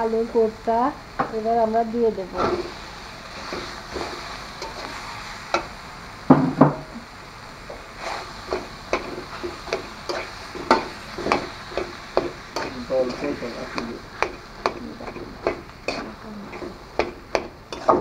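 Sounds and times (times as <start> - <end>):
light sizzle: 0.0 - 18.0
spatula scraping metal pan: 3.4 - 5.1, 8.0 - 18.0.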